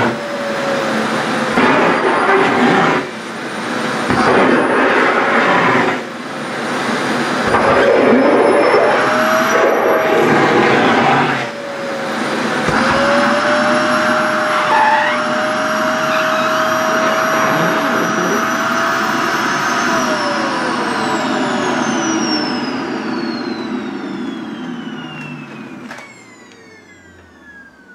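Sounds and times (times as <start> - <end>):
vacuum cleaner motor whine: 0.0 - 27.9
vacuum nozzle sucking at fabric: 1.2 - 20.1.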